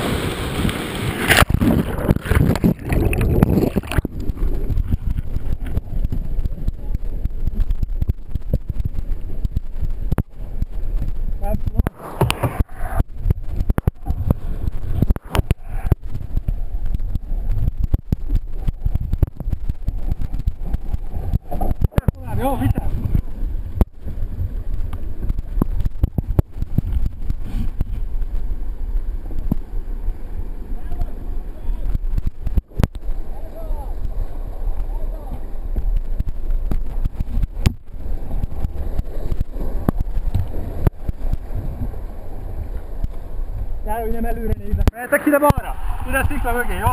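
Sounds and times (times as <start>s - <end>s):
microphone wind buffeting: 0.0s - 46.9s
rapids rushing: 0.0s - 46.9s
water striking camera housing: 11.8s - 23.9s.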